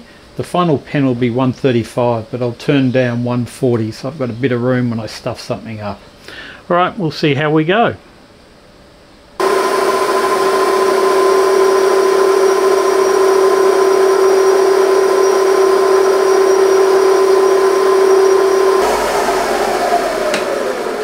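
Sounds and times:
lathe tool cutting metal: 0:09.4 - 0:21.0
metal lathe motor whine: 0:09.4 - 0:21.0.

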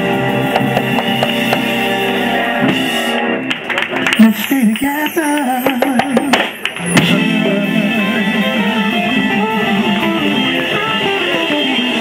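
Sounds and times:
soul band sustained chord: 0:00.0 - 0:03.5, 0:06.9 - 0:12.0.

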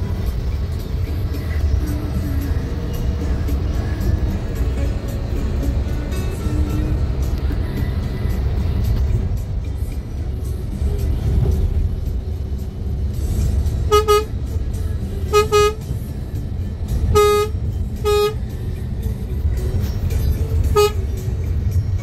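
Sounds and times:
vehicle engine and road noise: 0:00.0 - 0:22.0
vehicle horn toots: 0:13.8 - 0:14.4, 0:15.3 - 0:15.9, 0:17.0 - 0:18.5, 0:20.7 - 0:21.1.

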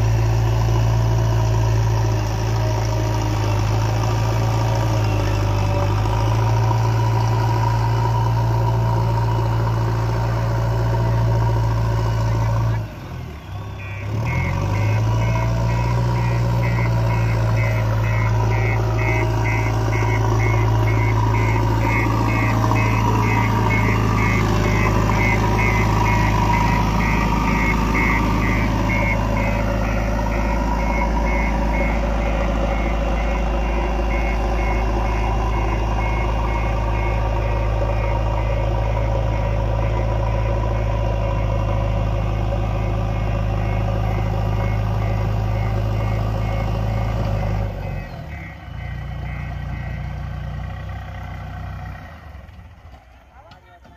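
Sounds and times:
diesel engine running under load: 0:00.0 - 0:53.9
rapid high beeps: 0:13.5 - 0:50.2.

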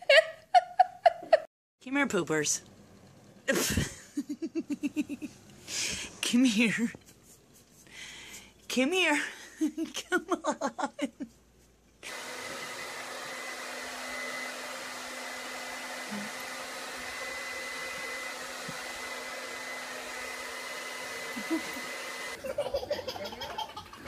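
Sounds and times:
hair dryer running: 0:12.0 - 0:22.4.

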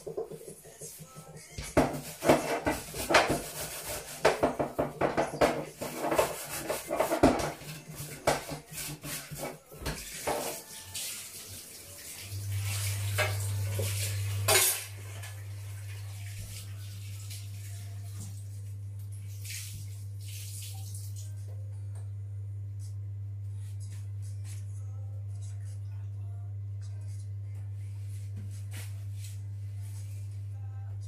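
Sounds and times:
dishes and cutlery clattering: 0:04.2 - 0:10.7, 0:14.4 - 0:14.9
steady low hum: 0:21.1 - 0:31.0.

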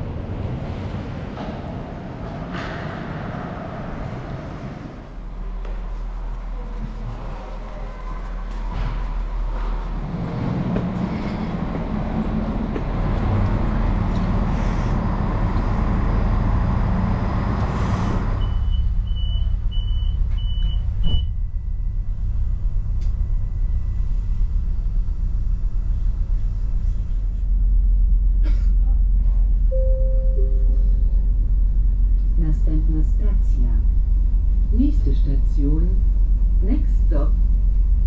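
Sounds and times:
diesel railcar engine drone: 0:00.0 - 0:38.0
door warning beeps: 0:18.4 - 0:21.3.

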